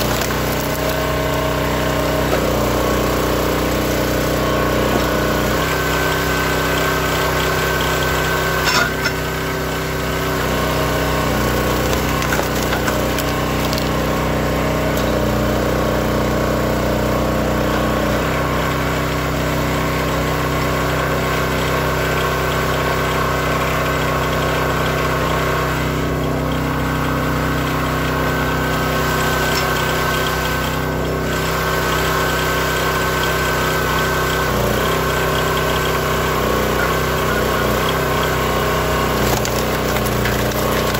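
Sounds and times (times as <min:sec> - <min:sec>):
small gasoline engine running: 0:00.0 - 0:40.9.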